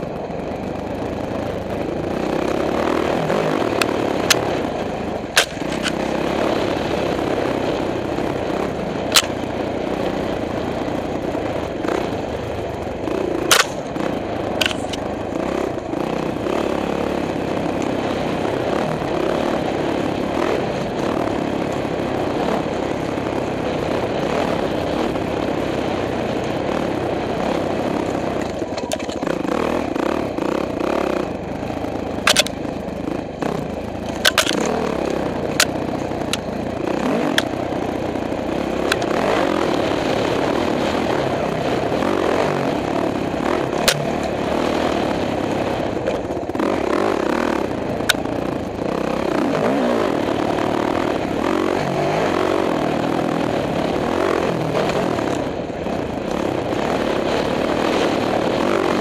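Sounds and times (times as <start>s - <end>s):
dirt bike engine revving: 1.4s - 59.0s
sharp knocks and clicks: 32.2s - 32.6s, 34.0s - 34.8s.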